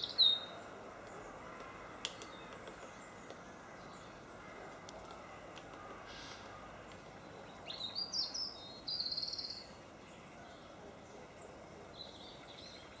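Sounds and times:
songbird singing with trill: 0:00.0 - 0:01.4, 0:06.1 - 0:13.0
steady background hiss: 0:00.0 - 0:13.0.

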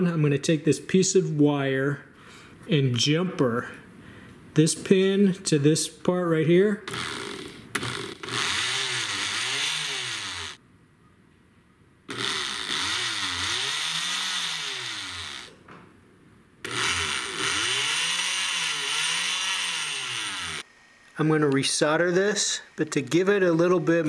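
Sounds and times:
oscillating multi-tool motor running: 0:06.9 - 0:10.6, 0:12.1 - 0:15.6, 0:16.6 - 0:20.7.

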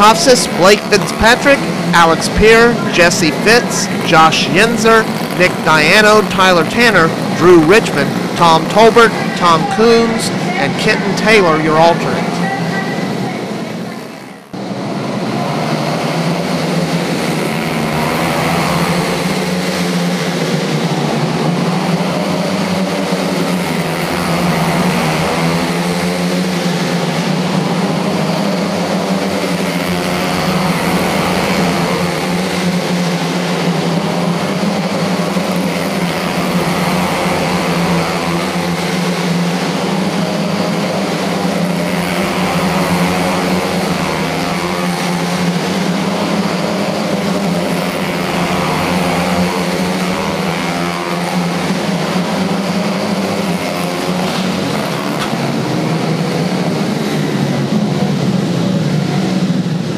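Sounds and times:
small race car engines droning: 0:00.0 - 0:59.9.

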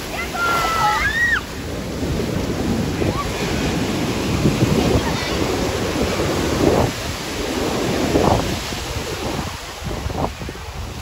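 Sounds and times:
surf breaking on beach: 0:00.0 - 0:11.0
wind on microphone: 0:00.0 - 0:11.0
high cry: 0:00.2 - 0:01.5.

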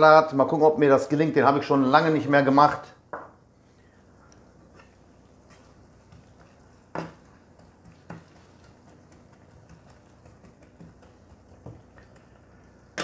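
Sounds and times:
onions frying in oil: 0:04.0 - 0:13.0
spatula scraping and knocking pan: 0:04.6 - 0:13.0.

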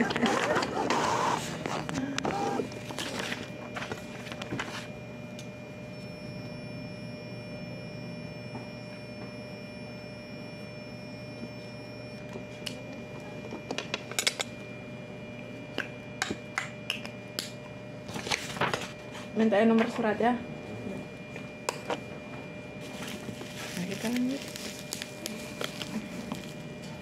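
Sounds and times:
steady hum: 0:00.0 - 0:27.0
paper rustling: 0:18.2 - 0:19.0.

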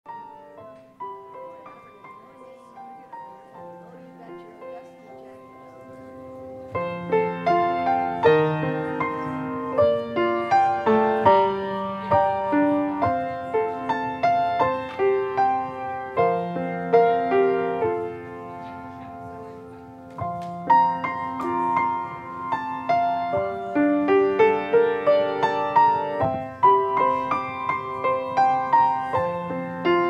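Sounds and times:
slow piano piece: 0:00.1 - 0:30.0.

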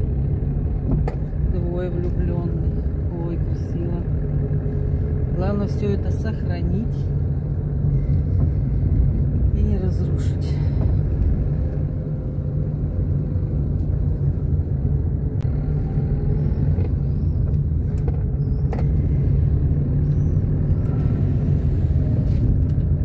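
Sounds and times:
car interior road rumble: 0:00.0 - 0:23.0.

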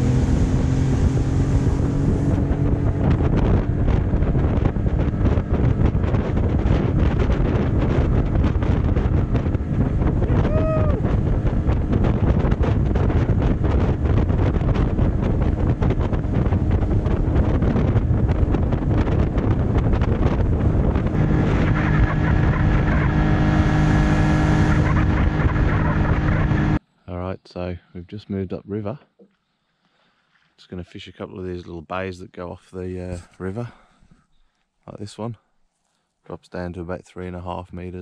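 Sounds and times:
outboard motor running: 0:00.0 - 0:26.8
wind buffeting microphone: 0:00.0 - 0:26.8.

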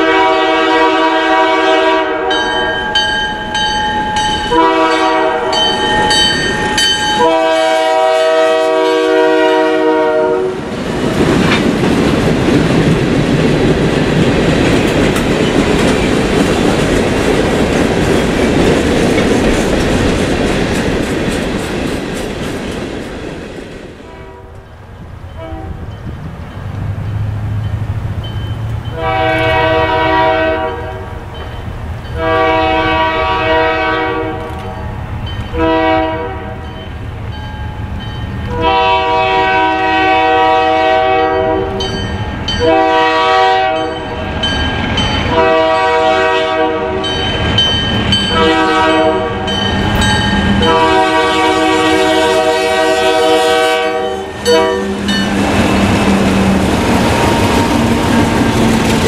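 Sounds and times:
locomotive horn blasts: 0:00.0 - 0:02.7, 0:04.5 - 0:05.8, 0:07.2 - 0:10.6, 0:24.0 - 0:24.7, 0:25.3 - 0:26.0, 0:28.8 - 0:31.2, 0:32.2 - 0:34.8, 0:35.5 - 0:36.8, 0:38.5 - 0:41.9, 0:42.6 - 0:44.1, 0:45.3 - 0:47.2, 0:48.3 - 0:50.0, 0:50.6 - 0:55.3
locomotive engine and wheel rumble: 0:10.6 - 0:33.4, 0:54.2 - 0:59.0
freight cars rolling past: 0:10.6 - 0:35.5, 0:53.9 - 0:59.0.

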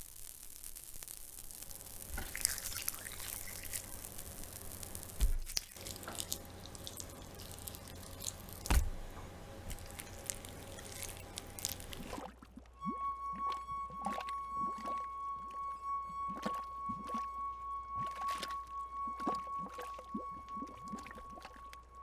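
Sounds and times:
drip-like clicks and crackles: 0:00.0 - 0:08.9, 0:09.7 - 0:15.6, 0:16.3 - 0:17.3, 0:18.0 - 0:21.9
steady low hum: 0:01.5 - 0:12.9.

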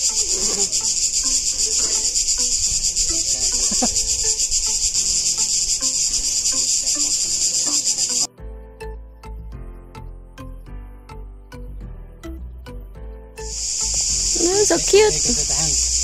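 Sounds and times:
cicadas buzzing: 0:00.0 - 0:08.3, 0:13.4 - 0:16.0
music: 0:00.0 - 0:16.0.

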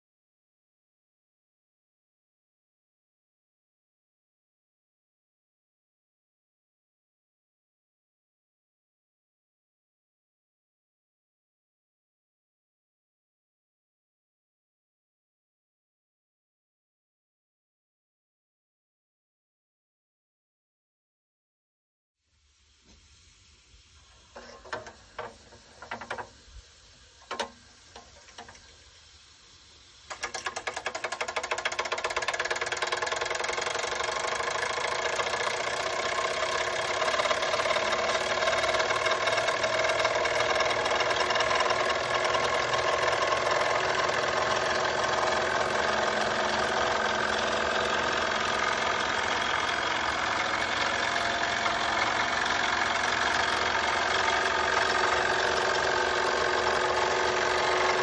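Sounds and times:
toy steam engine running: 0:23.9 - 0:58.0.

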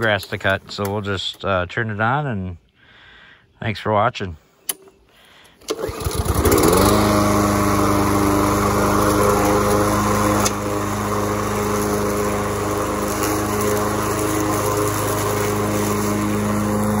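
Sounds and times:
lawn mower engine running: 0:05.6 - 0:17.0.

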